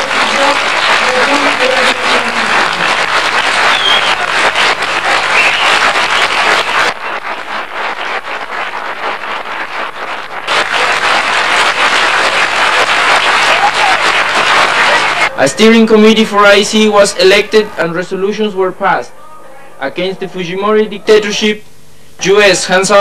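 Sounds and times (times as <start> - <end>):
audience applauding: 0.0 - 15.4.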